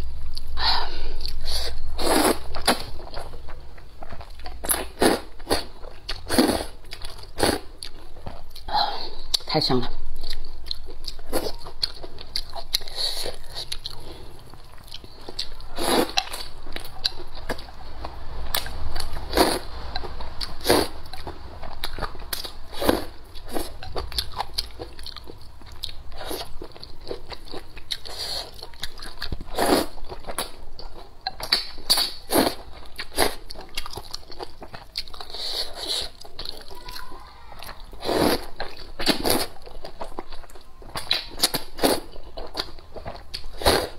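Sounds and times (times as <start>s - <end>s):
wet chewing and smacking: 10.2s - 17.8s, 19.9s - 43.6s.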